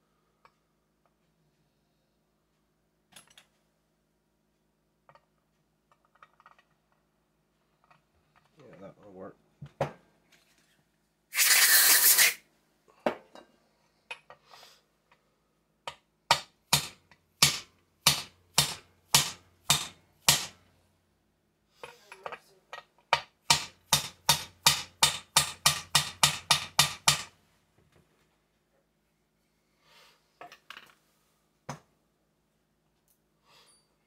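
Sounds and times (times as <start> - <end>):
burst of hiss: 11.3 - 12.4
hammer tapping on metal: 23.1 - 27.3.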